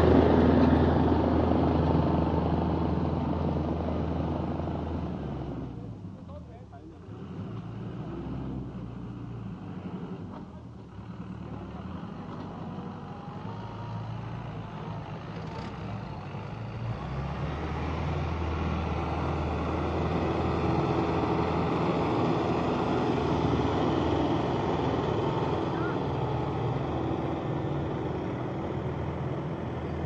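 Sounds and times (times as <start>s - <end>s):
tractor engine running under load: 0.0s - 6.2s, 7.6s - 30.0s.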